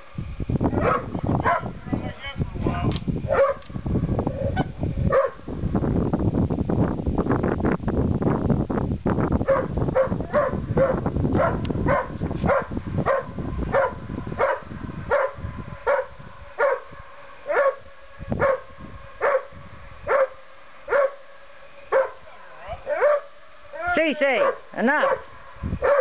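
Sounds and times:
wind rumbling on microphone: 0:00.0 - 0:26.0
dog barking: 0:00.8 - 0:01.7, 0:03.3 - 0:03.6, 0:05.1 - 0:05.4, 0:09.5 - 0:17.8, 0:18.4 - 0:19.5, 0:20.1 - 0:21.2, 0:21.9 - 0:22.2, 0:22.9 - 0:23.3, 0:24.3 - 0:26.0.

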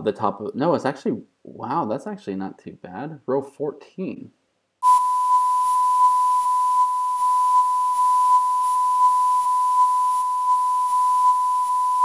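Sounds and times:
censor bleep tone: 0:04.8 - 0:12.0.

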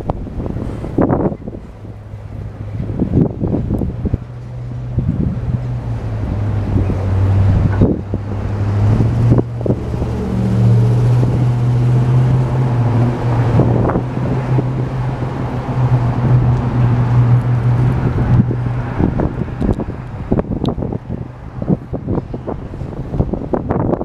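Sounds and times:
wheels clanking over rail joints: 0:00.0 - 0:20.4.

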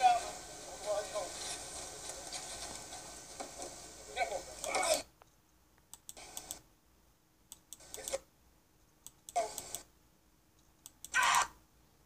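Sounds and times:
faint clicks: 0:04.6 - 0:06.6
person shouting short calls: 0:11.1 - 0:11.6.

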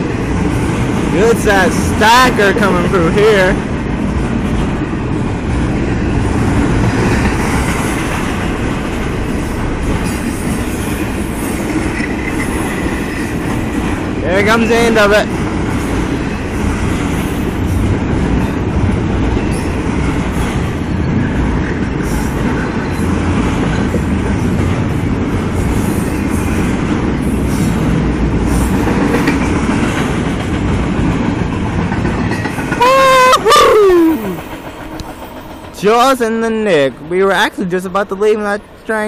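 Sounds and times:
train cars rumbling past: 0:00.0 - 0:39.0
person calling out: 0:32.8 - 0:34.4.

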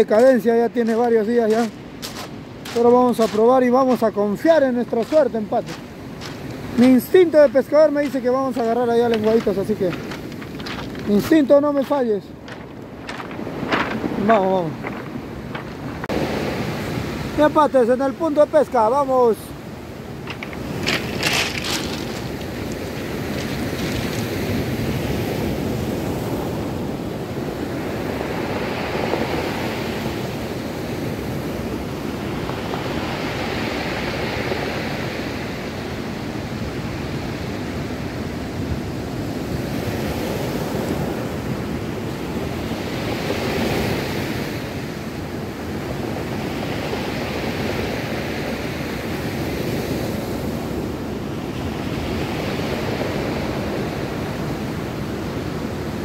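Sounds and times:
wind buffeting microphone: 0:00.0 - 0:17.5, 0:19.1 - 0:46.4
surf washing over pebbles: 0:00.0 - 0:56.0.

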